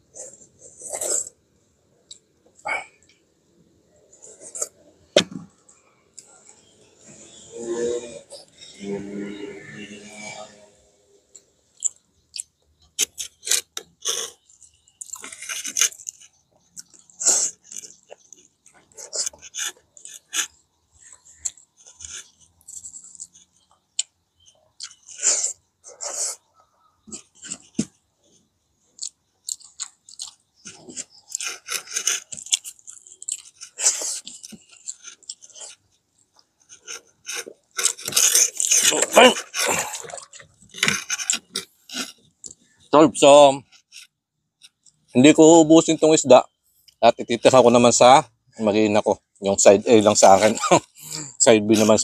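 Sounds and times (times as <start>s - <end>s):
crunchy chewing: 0.0s - 10.5s, 11.3s - 48.0s
mouth noises: 2.0s - 28.0s, 36.7s - 52.0s
mouth smacks: 37.4s - 42.6s.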